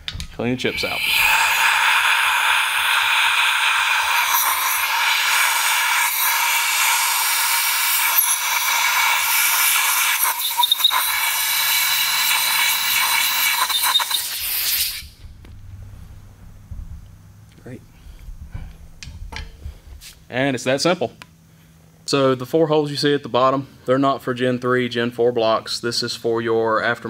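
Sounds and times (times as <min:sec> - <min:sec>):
compressed air hiss: 0:00.6 - 0:15.2.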